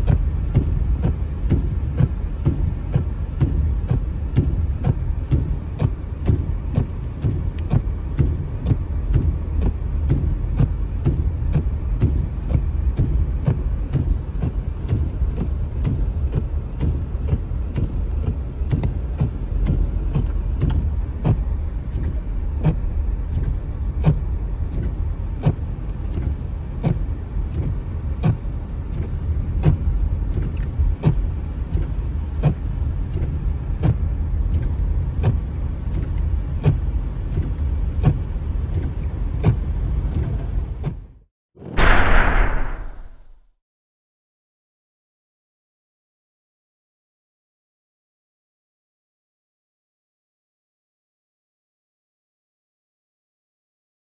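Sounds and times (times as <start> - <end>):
windshield wipers sweeping: 0.0 - 42.6
car driving rumble: 0.0 - 43.4.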